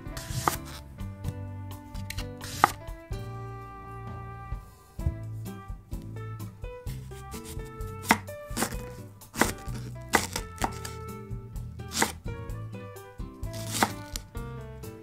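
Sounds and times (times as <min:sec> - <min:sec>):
light instrumental music: 0:00.0 - 0:15.0
knife chopping on cutting board: 0:00.2 - 0:00.8, 0:02.0 - 0:02.8, 0:07.1 - 0:11.0, 0:11.9 - 0:12.3, 0:13.5 - 0:14.2.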